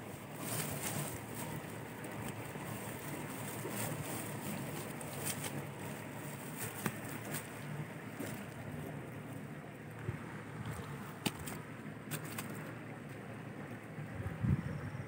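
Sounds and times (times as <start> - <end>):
mesh sack crackling and rustling: 0.0 - 8.9, 10.7 - 12.7
wind rumbling on microphone: 13.8 - 15.0.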